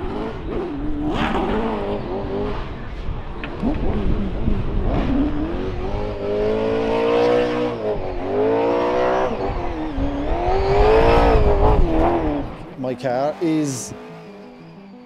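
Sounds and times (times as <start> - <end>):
car engine revving hard: 0.0 - 2.7, 3.6 - 12.7.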